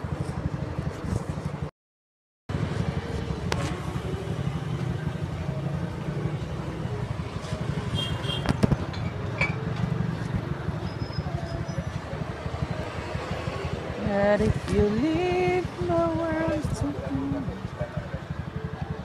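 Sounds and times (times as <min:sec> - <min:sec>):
faint high squeaks: 0:10.8 - 0:12.1.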